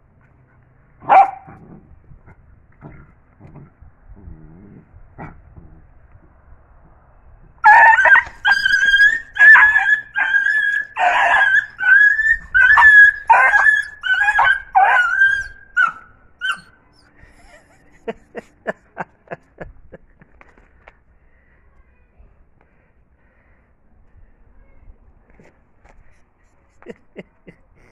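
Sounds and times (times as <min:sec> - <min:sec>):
dog yelping in pain: 0:07.6 - 0:16.7.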